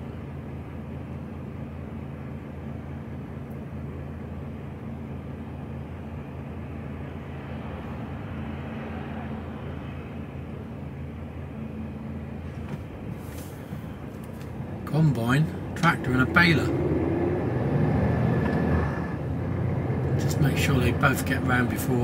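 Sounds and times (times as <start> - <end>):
lorry diesel engine idling: 9.3 - 17.5.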